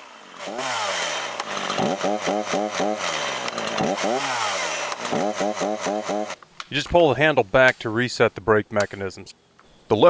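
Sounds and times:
chainsaw engine surging: 0.0s - 6.4s.

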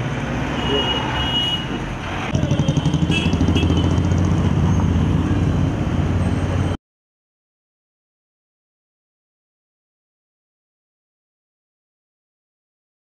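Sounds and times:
road traffic noise: 0.0s - 6.8s
vehicle engine humming: 0.0s - 6.8s.

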